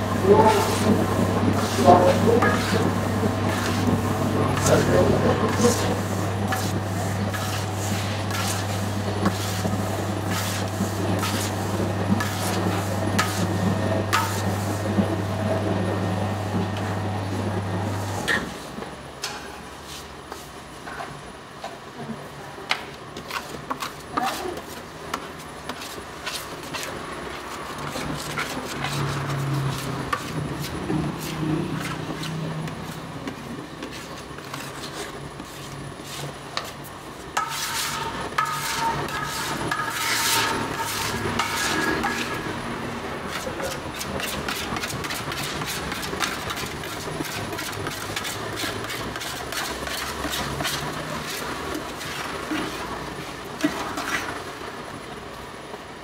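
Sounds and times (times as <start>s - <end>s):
dough mixer humming: 0.0s - 18.8s, 25.0s - 56.0s
scraper knocking on steel bowl: 37.4s - 42.5s.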